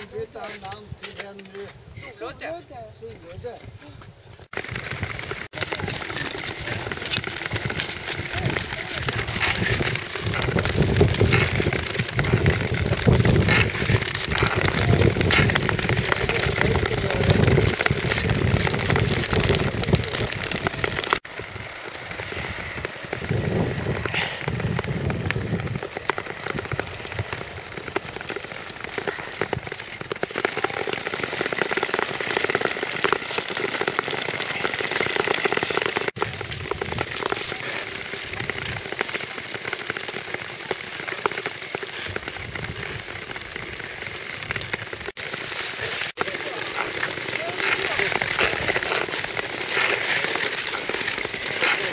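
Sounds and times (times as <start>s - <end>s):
wind buffeting microphone: 1.8s - 28.2s, 36.2s - 38.9s
ice skates scraping on ice: 4.5s - 51.9s.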